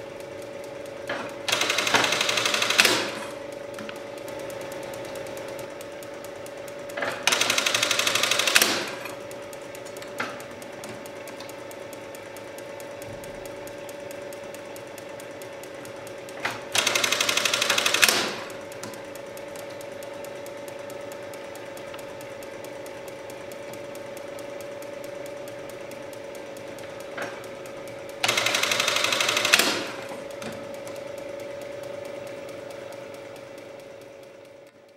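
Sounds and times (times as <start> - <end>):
steady hum: 0.0 - 34.9
sharp knock of sewing machine: 1.1 - 3.4, 7.0 - 9.2, 16.4 - 18.6, 28.2 - 30.6
sewing machine stitching: 1.1 - 9.3, 15.4 - 19.4, 26.5 - 31.3.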